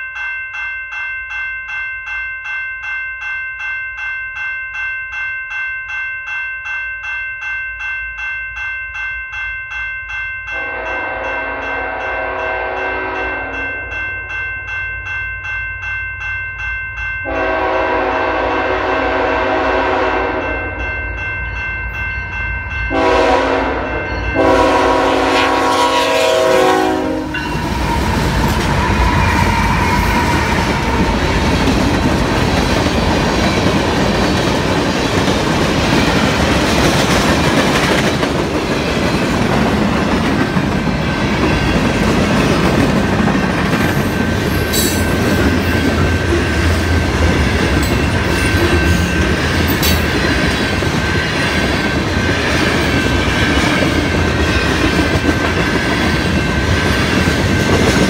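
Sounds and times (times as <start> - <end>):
crossing bell ringing: 0.0 - 58.0
locomotive horn blasts: 10.5 - 13.7, 17.2 - 20.8, 22.9 - 27.5
train engine and wheels rumbling: 10.5 - 58.0.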